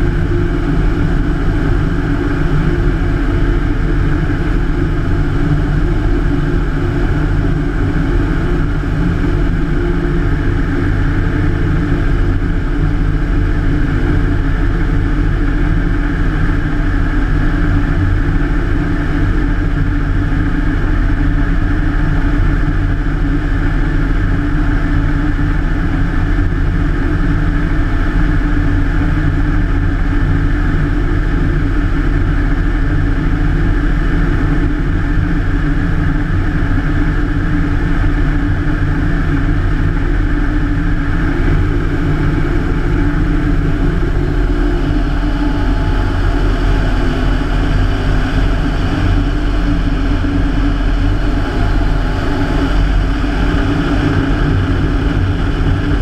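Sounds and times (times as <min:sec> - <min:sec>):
radial aircraft engine running: 0:00.0 - 0:56.0.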